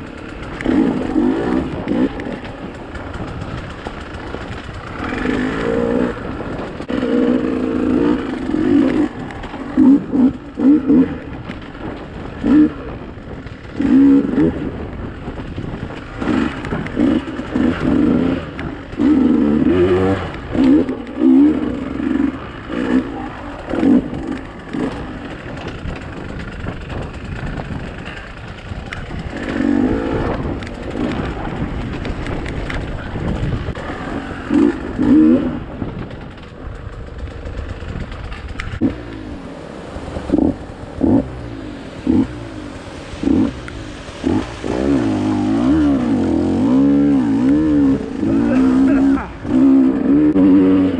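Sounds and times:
dirt bike engine revving: 0.0s - 50.9s.

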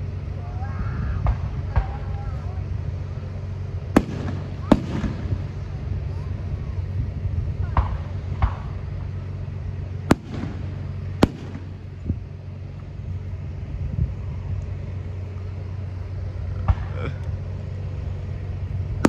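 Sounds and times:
steady low hum: 0.0s - 19.0s
fireworks exploding: 1.2s - 6.7s, 7.5s - 9.1s, 10.0s - 12.4s
fireworks crackle: 1.3s - 6.6s, 10.0s - 13.0s.

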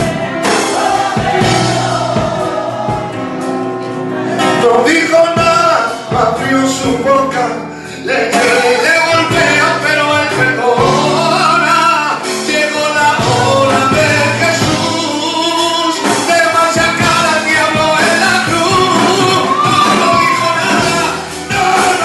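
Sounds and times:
instrumental backing music: 0.0s - 22.0s
man singing through microphone: 4.3s - 22.0s.

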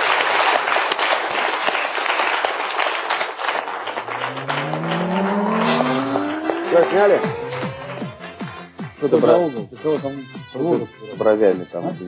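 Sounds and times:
audience applauding: 0.0s - 8.9s
sliding tones of theme music: 4.0s - 9.1s.

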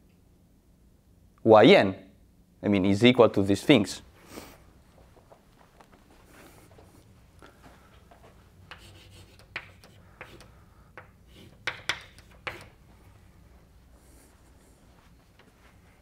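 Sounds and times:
chalk tapping and scratching: 8.7s - 12.8s.

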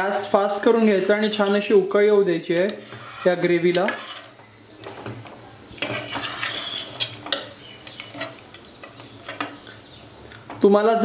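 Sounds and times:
liquid swishing in a pot: 2.8s - 4.4s, 5.8s - 7.2s.

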